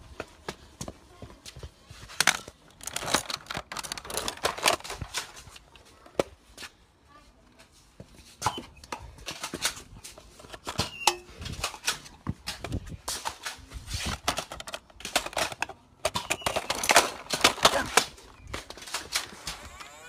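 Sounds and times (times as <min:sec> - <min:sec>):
plastic toy blaster clicks and rattles: 0:02.2 - 0:05.4, 0:13.3 - 0:19.8.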